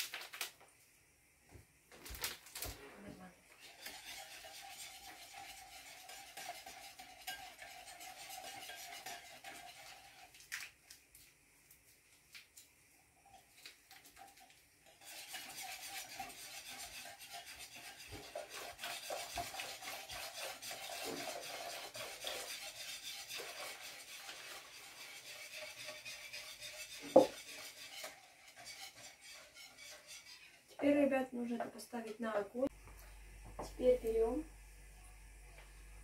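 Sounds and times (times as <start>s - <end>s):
whisk scraping a glass bowl: 3.6s - 10.4s, 14.1s - 31.0s.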